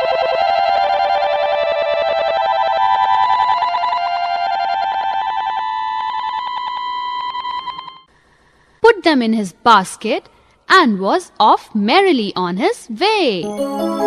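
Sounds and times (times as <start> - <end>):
warbling electronic melody: 13.4 - 14.0.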